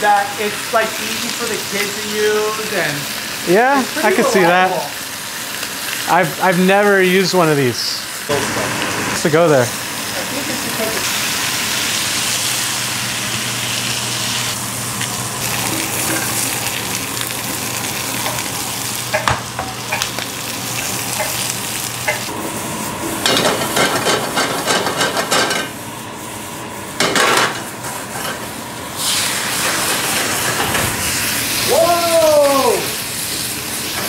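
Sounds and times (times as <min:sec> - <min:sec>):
meat and onions sizzling: 0:00.0 - 0:34.0.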